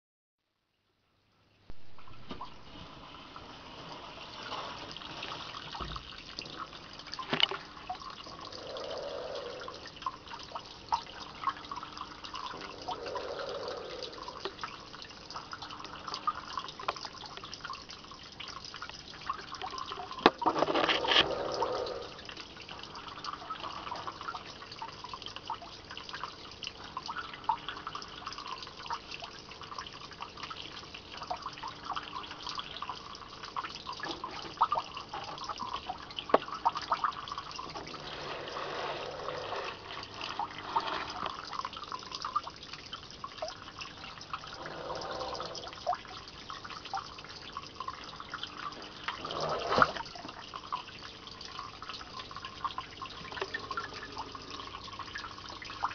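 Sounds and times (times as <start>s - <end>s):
water splashing and dripping: 1.7s - 55.9s.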